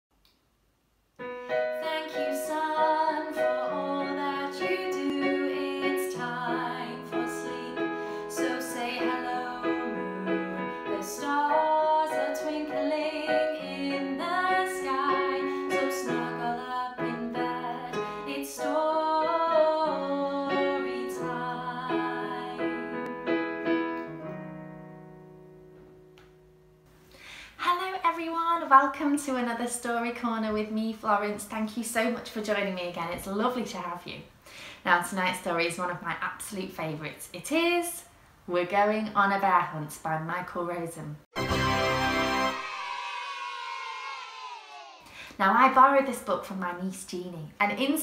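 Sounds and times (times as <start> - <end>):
woman singing: 1.7 - 23.0
electronic keyboard: 41.4 - 42.8.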